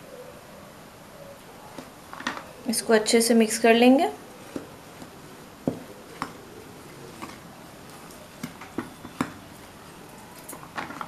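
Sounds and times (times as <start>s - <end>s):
spoon stirring dry flour: 4.2s - 11.0s.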